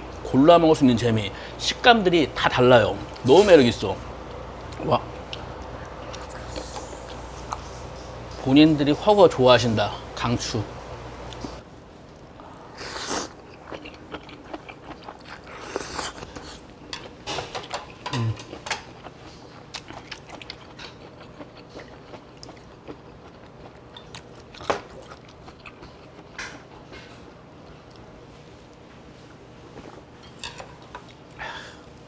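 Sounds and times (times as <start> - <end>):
chewing: 12.9 - 28.8.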